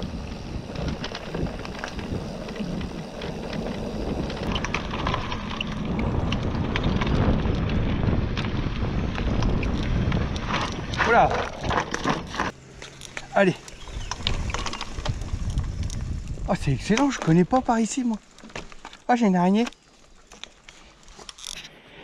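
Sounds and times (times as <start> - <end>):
wind noise on microphone: 0.0 - 12.5, 13.8 - 17.7
tyres rumbling on dirt: 0.0 - 19.6
bike clicks and rattles: 0.0 - 21.9.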